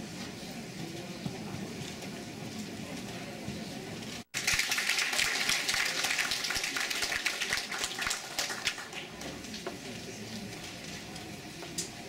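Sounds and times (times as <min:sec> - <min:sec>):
audience applauding: 0:04.3 - 0:09.2.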